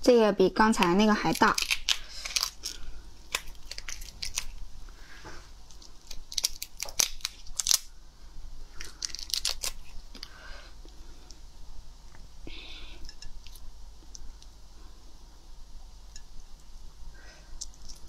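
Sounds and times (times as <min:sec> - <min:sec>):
prawn shell cracking: 0:00.8 - 0:04.6, 0:05.7 - 0:07.9, 0:08.8 - 0:10.3.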